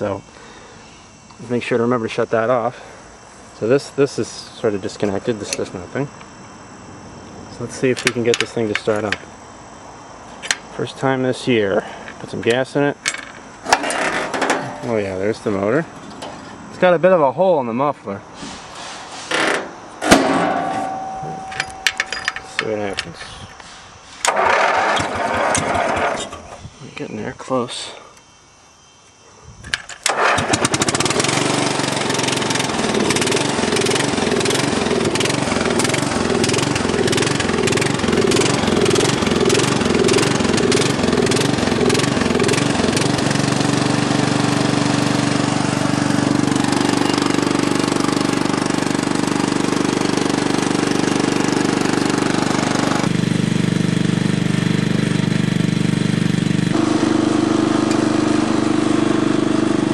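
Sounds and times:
lawn tractor engine running: 0:20.0 - 0:26.5, 0:30.0 - 0:59.9.

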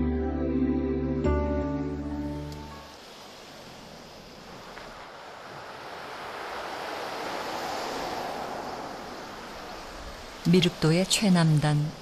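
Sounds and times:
car passing: 0:02.1 - 0:11.2.

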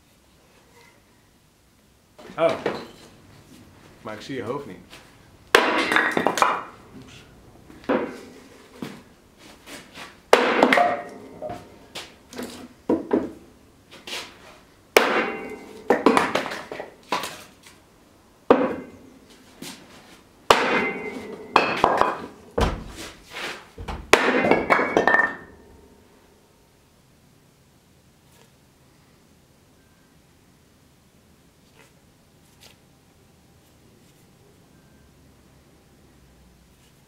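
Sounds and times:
heavy hammer blows on anvil: 0:15.0 - 0:15.9, 0:20.5 - 0:22.2
metallic ringing: 0:15.1 - 0:15.8, 0:20.6 - 0:21.9.

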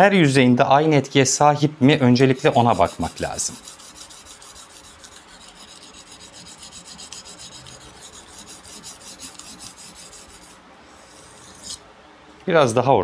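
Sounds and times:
knife scraping on sharpening stone: 0:02.6 - 0:11.8.

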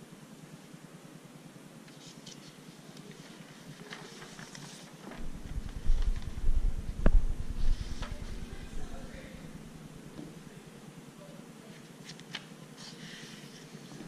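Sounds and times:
paper crackling: 0:01.9 - 0:09.7, 0:12.0 - 0:14.0
footstep thumps and rumble: 0:05.2 - 0:10.5.

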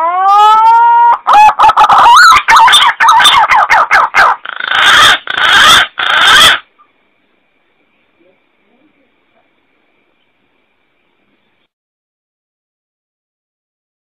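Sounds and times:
pigeon call: 0:00.0 - 0:06.9.

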